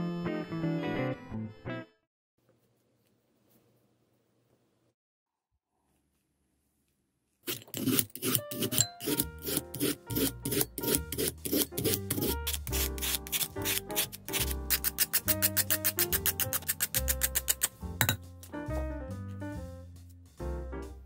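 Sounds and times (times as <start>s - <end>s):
peeler scraping potato: 7.4s - 17.8s
light background music: 7.8s - 21.0s.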